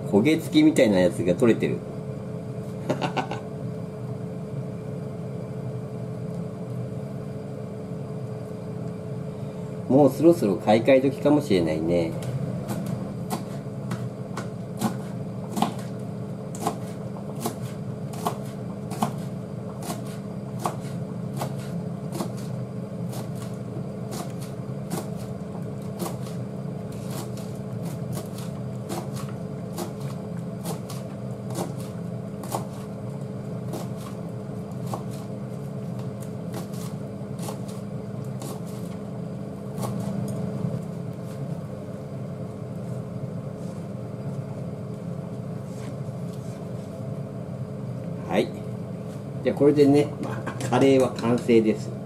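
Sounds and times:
knife chopping on plastic board: 0:12.6 - 0:15.9, 0:16.5 - 0:22.5, 0:23.1 - 0:25.3, 0:25.9 - 0:32.9, 0:34.8 - 0:35.3, 0:36.0 - 0:37.8.

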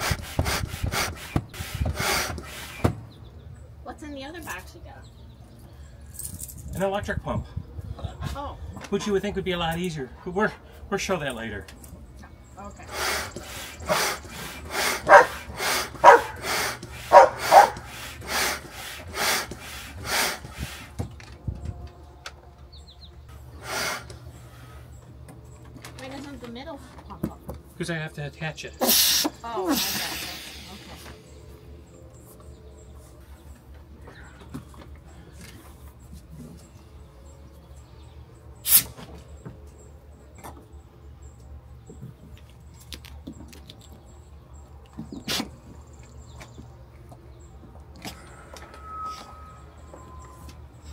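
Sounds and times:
hand pump strokes of air: 0:00.0 - 0:03.0, 0:12.8 - 0:21.2, 0:23.5 - 0:24.9, 0:28.8 - 0:31.4.

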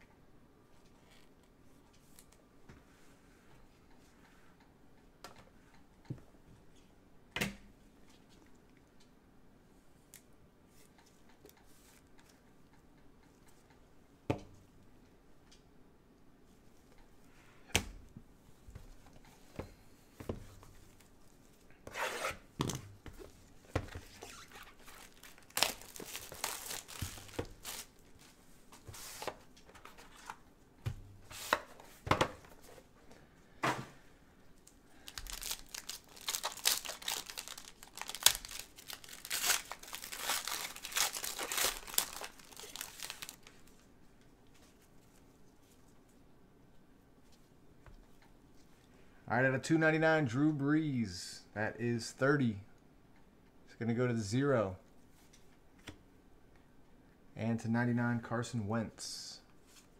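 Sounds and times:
cards tapping and rustling: 0:22.6 - 0:27.9, 0:35.2 - 0:43.4
foil wrapper tearing and crinkling: 0:24.1 - 0:28.0, 0:35.0 - 0:43.6.

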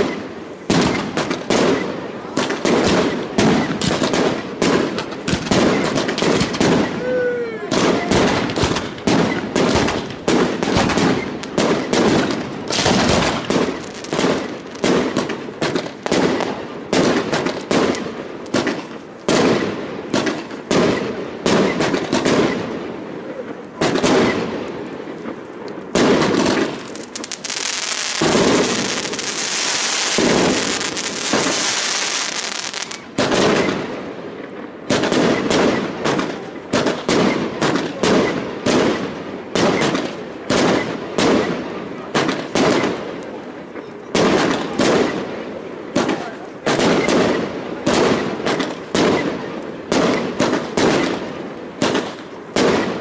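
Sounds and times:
firework whistle: 0:00.0 - 0:02.0, 0:05.5 - 0:09.9
fireworks bangs: 0:00.0 - 0:53.0
fireworks crackling hiss: 0:00.0 - 0:53.0.

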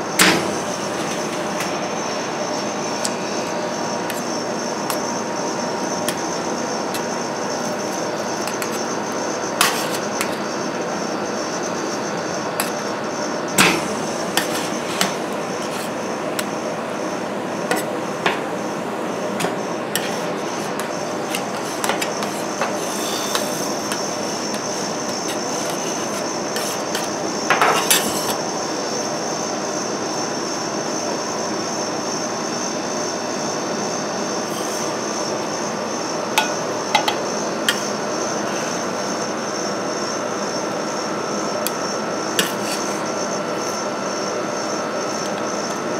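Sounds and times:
spatulas scraping metal plate: 0:09.6 - 0:10.4, 0:19.4 - 0:28.4.

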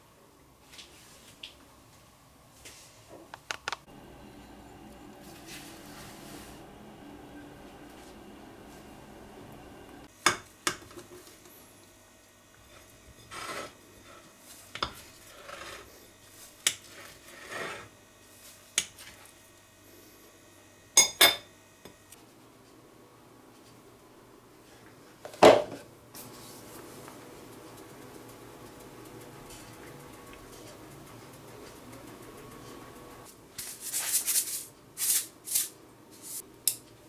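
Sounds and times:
knife scraping on plate: 0:13.2 - 0:13.8, 0:15.3 - 0:15.9, 0:16.7 - 0:17.9.

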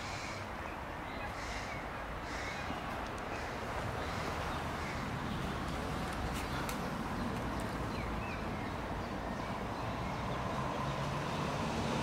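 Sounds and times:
faint bird calls: 0:00.0 - 0:05.5
distant road traffic hum: 0:00.0 - 0:12.0.

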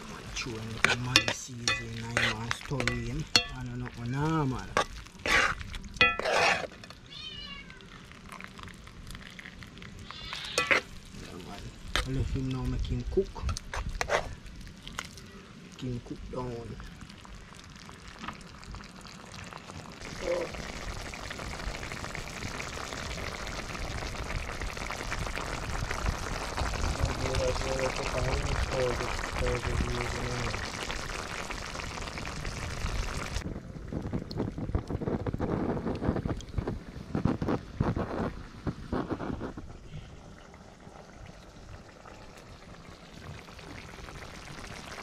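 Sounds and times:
stew bubbling and popping: 0:00.0 - 0:45.0
metal ladle scraping in pot: 0:00.8 - 0:03.6, 0:04.7 - 0:06.9, 0:10.1 - 0:11.0, 0:13.4 - 0:14.4
cat meowing: 0:07.0 - 0:08.0, 0:10.0 - 0:10.7.

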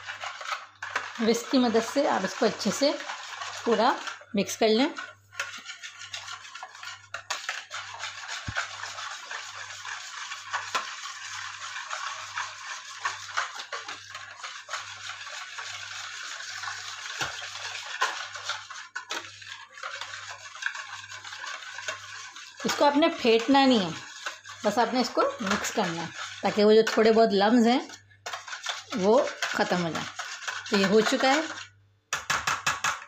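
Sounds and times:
whisk swishing in liquid: 0:00.0 - 0:33.0
whisk wires knocking bowl: 0:00.2 - 0:33.0.

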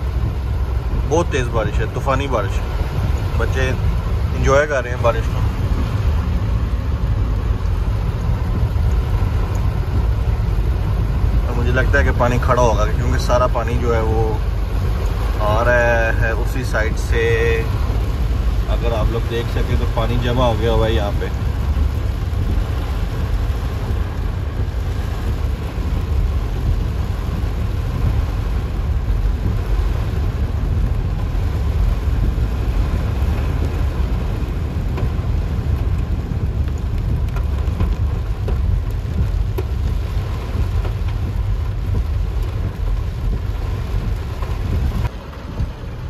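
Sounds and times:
heavy rain on a car: 0:00.0 - 0:46.0
low rumble of moving car: 0:00.0 - 0:46.0.

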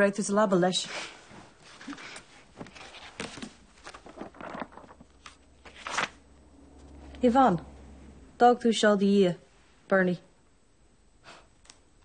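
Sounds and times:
book pages rustling: 0:01.3 - 0:06.2
page swishing: 0:01.6 - 0:06.2.

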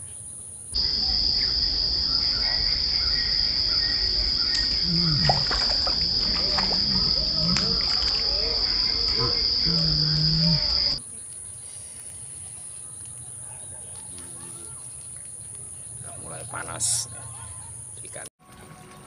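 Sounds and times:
high-pitched insect drone: 0:00.8 - 0:11.0
fish splashing at water surface: 0:04.1 - 0:09.1.

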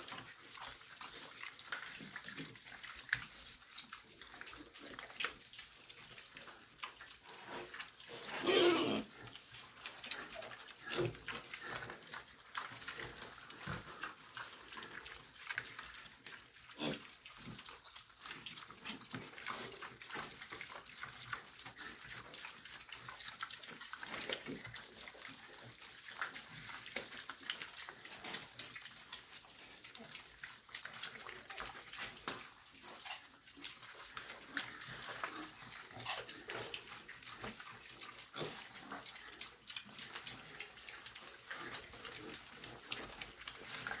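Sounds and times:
pigs chewing and slurping: 0:00.0 - 0:44.0
pigs grunting: 0:06.2 - 0:27.2, 0:32.9 - 0:44.0.

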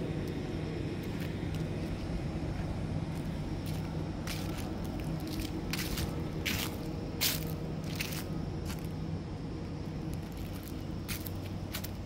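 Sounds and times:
low hum: 0:00.0 - 0:12.0
footsteps on dry leaves: 0:03.2 - 0:09.0, 0:10.1 - 0:12.0.

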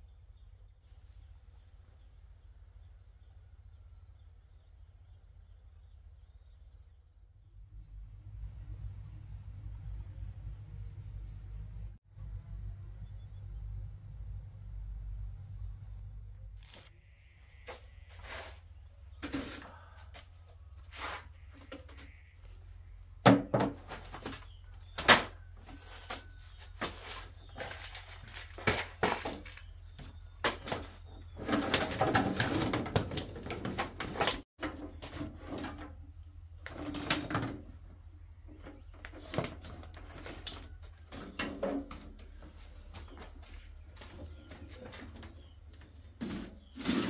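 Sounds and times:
tools rattling in plastic crate: 0:26.8 - 0:29.8, 0:30.5 - 0:36.0.

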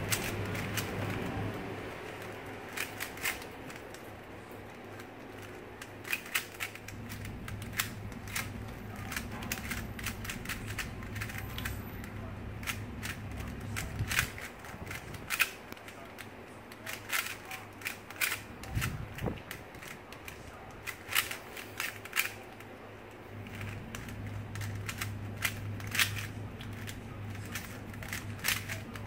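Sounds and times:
steady low hum: 0:00.0 - 0:29.0
puzzle cube clicking: 0:02.2 - 0:04.0, 0:04.9 - 0:11.8, 0:12.6 - 0:15.9, 0:16.8 - 0:20.2, 0:20.8 - 0:22.4, 0:23.4 - 0:29.0.

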